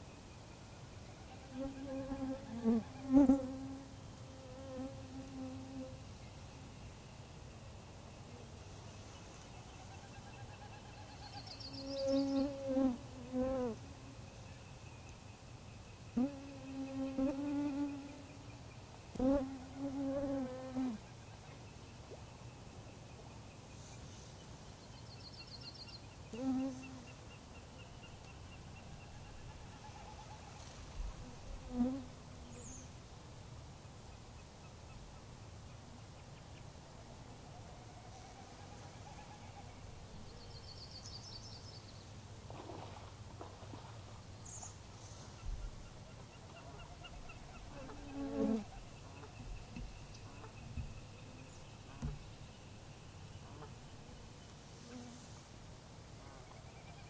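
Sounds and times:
faint outdoor background: 0:00.0 - 0:57.0
flying insect buzzing: 0:47.7 - 0:48.8.

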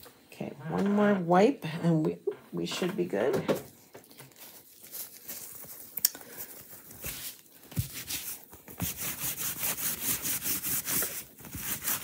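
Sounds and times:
wet wipe scrubbing plastic mesh: 0:04.4 - 0:12.0.

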